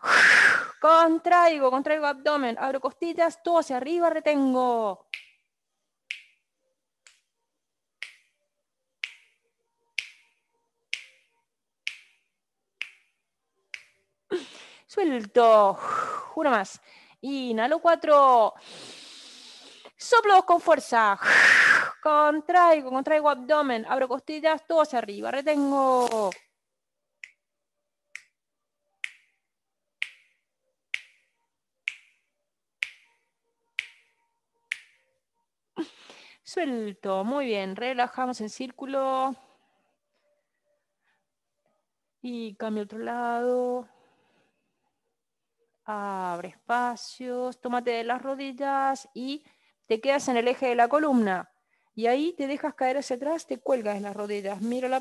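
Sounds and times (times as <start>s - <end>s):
finger snaps: 5.0s - 5.5s, 6.1s - 6.4s, 7.0s - 7.3s, 8.0s - 8.4s, 9.0s - 9.4s, 10.0s - 14.0s, 26.0s - 26.5s, 27.2s - 27.4s, 28.1s - 28.4s, 29.0s - 29.4s, 30.0s - 33.2s, 33.8s - 35.1s.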